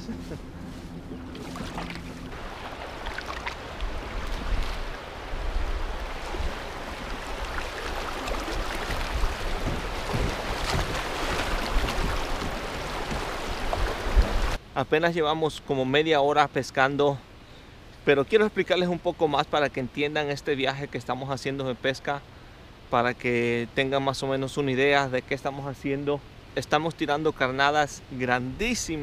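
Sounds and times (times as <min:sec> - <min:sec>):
rushing river water: 0:00.0 - 0:14.6
wind rumbling on microphone: 0:00.0 - 0:14.6.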